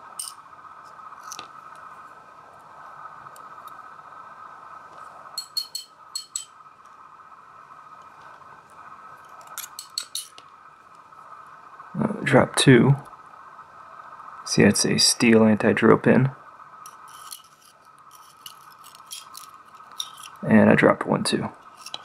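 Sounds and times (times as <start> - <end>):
faint high hum: 0.0 - 22.0.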